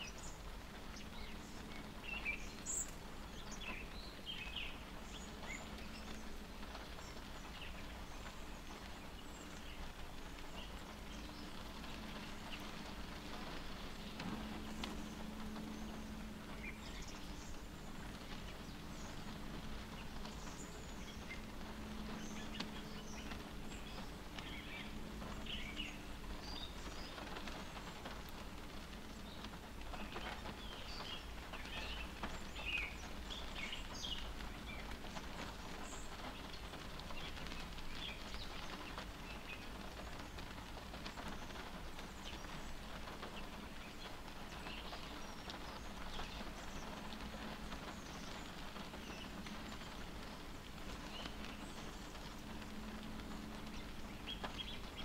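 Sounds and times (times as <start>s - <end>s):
rain pattering on car: 0.0s - 55.0s
low rumble: 3.2s - 32.3s.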